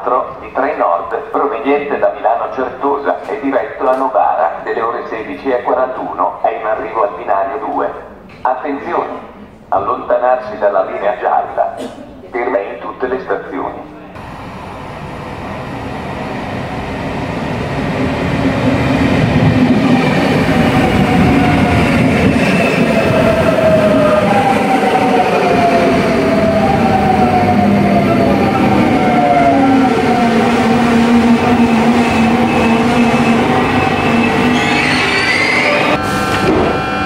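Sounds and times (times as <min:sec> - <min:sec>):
electric train slowing to a stop: 0:14.2 - 0:37.0.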